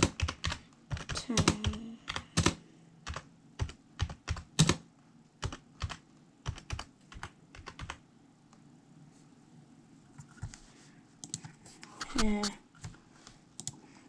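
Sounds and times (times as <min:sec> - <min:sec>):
keyboard keys tapping: 0:00.0 - 0:04.8, 0:05.4 - 0:08.0.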